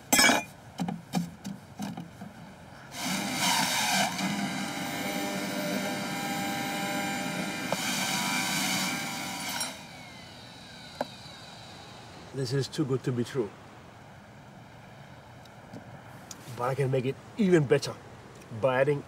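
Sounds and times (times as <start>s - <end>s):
electric juicer running: 3.0s - 11.7s.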